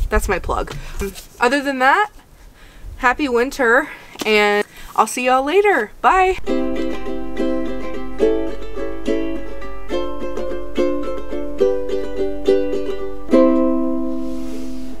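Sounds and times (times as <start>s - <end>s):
ukulele chords strummed: 6.4s - 15.0s.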